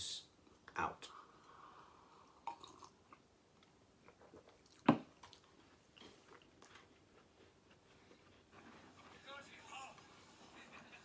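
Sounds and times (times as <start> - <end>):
person sipping tea: 1.1 - 3.3
chewing shortbread: 1.4 - 9.2.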